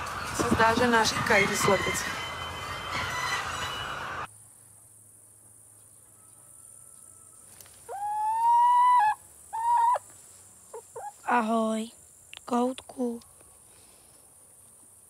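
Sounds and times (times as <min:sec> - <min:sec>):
crickets chirring: 0:04.3 - 0:15.0
din of hens in hen house: 0:05.7 - 0:11.5
cockerel crowing: 0:06.1 - 0:10.1.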